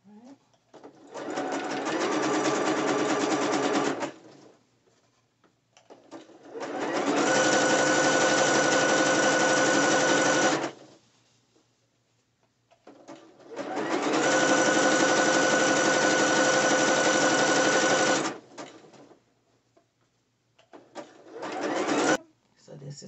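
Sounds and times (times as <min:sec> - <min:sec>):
sewing machine stitching: 0:00.7 - 0:04.6, 0:05.8 - 0:11.0, 0:12.8 - 0:19.2, 0:20.7 - 0:22.2.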